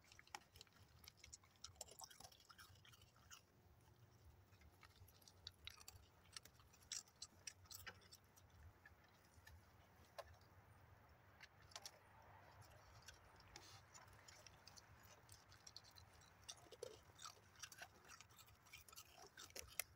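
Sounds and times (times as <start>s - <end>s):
raccoon crunching cereal: 0.0s - 19.9s.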